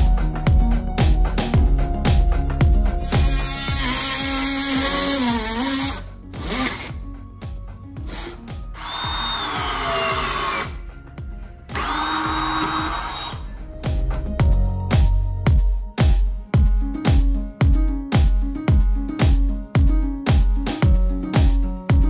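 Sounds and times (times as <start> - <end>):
background music with steady beat: 0.0 - 22.0
power tool cutting plastic pipe: 3.0 - 7.0, 8.0 - 10.8, 11.7 - 13.5.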